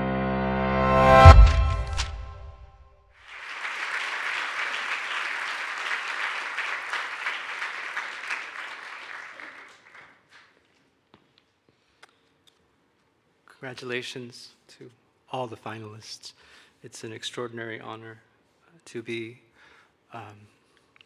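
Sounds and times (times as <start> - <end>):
intro music: 0.0 - 2.9
audience applauding: 3.2 - 10.6.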